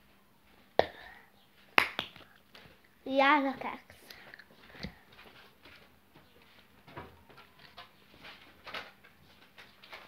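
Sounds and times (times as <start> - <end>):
child chewing bubble gum: 4.1 - 5.1.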